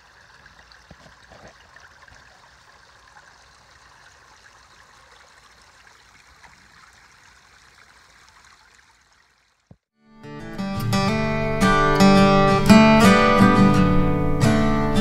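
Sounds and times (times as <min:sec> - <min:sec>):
waterfall trickling and splashing: 0:00.0 - 0:09.9.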